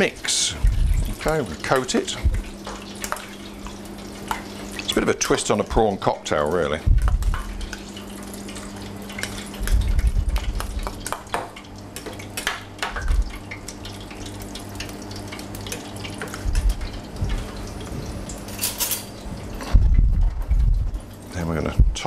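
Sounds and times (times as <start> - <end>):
low steady hum: 0.0 - 22.0
metal spoon clinking in steel bowl: 18.5 - 19.1.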